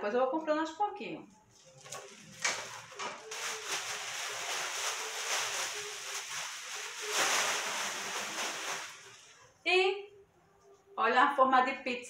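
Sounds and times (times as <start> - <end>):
plastic bag rustling and crinkling: 1.5 - 9.4.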